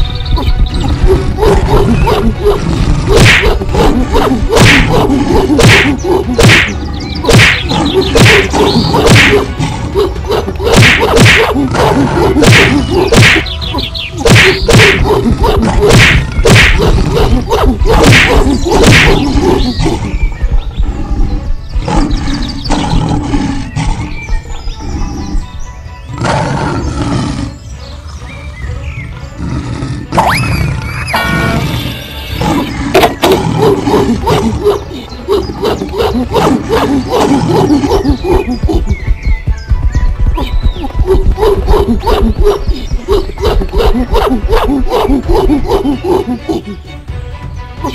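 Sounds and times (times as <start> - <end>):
background music: 0.0 - 47.9
cartoon whacks and smacks: 3.1 - 9.6, 10.4 - 19.7.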